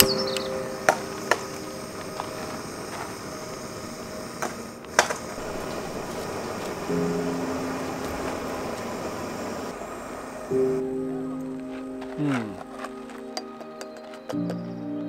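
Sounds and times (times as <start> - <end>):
gas stove hissing: 0.0 - 12.0.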